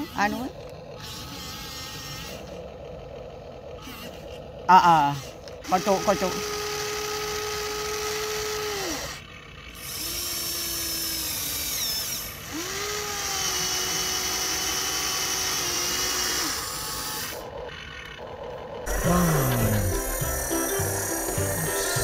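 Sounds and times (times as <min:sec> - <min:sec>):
small electric motor whining: 0:00.0 - 0:22.0
music: 0:18.9 - 0:22.0.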